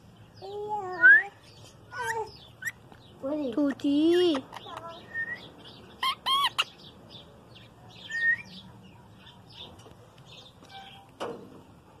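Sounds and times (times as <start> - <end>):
parakeet squawking: 4.2 - 6.9
faint bird chirps: 4.2 - 11.1.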